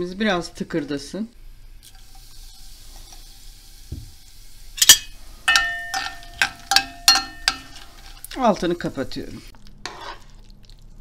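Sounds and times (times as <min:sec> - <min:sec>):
peppers sizzling in oil: 0:01.7 - 0:11.0
metal spoon knocking on pan: 0:04.8 - 0:07.9.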